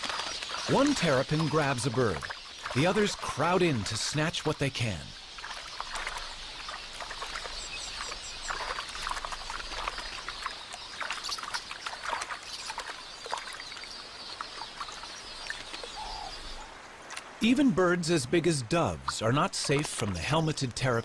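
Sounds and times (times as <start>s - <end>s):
flock of birds chattering: 0.0s - 16.8s
water splashing: 0.0s - 21.0s.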